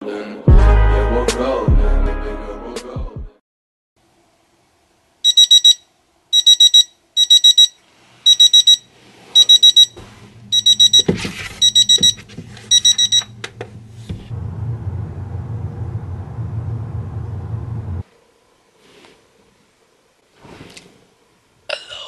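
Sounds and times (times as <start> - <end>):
high-pitched alarm beeps: 5.3 - 8.8, 9.4 - 13.3.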